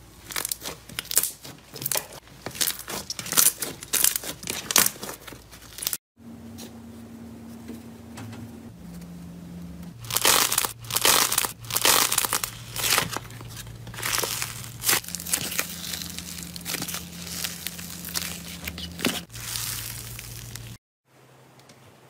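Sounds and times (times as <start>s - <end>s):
foil crinkling: 0.2s - 6.0s, 10.0s - 20.8s
slime crackling and tearing: 0.2s - 6.0s, 10.0s - 20.8s.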